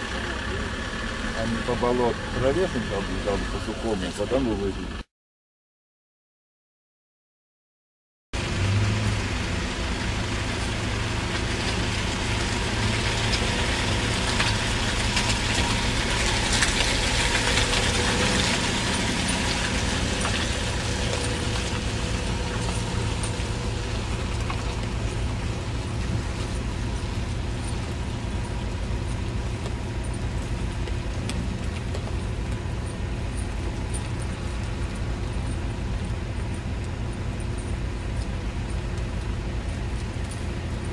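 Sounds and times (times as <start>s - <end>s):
van engine under load: 0.0s - 5.1s, 8.4s - 40.9s
tyres in mud: 8.4s - 40.9s.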